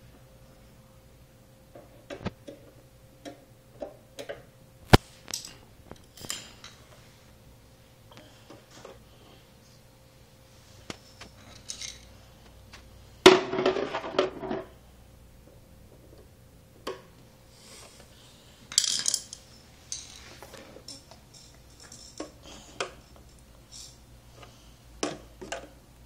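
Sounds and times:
metal clatter on tile floor: 0:11.2 - 0:12.1, 0:18.7 - 0:22.6
screwdrivers clinking on plastic: 0:20.9 - 0:22.4.

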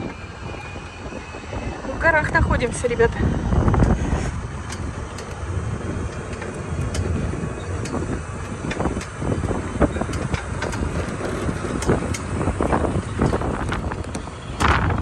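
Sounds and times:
light rattles: 0:00.0 - 0:15.0
vehicle engine rumble: 0:00.0 - 0:15.0
wind buffeting microphone: 0:00.0 - 0:15.0.

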